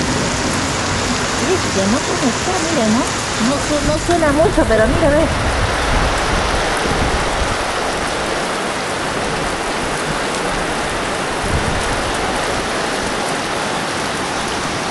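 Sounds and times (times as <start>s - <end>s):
heavy rain hissing: 0.0s - 14.9s.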